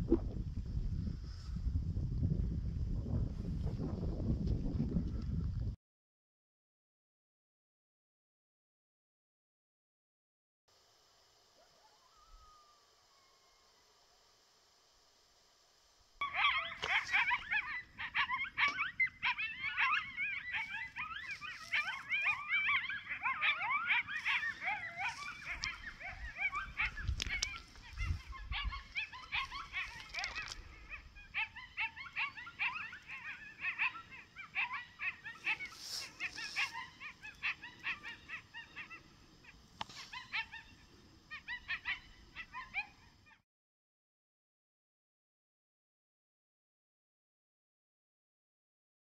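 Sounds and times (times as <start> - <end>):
wind rumbling on microphone: 0.0 - 5.8, 16.8 - 33.2
coyotes yipping and howling: 11.5 - 14.3, 16.2 - 43.4.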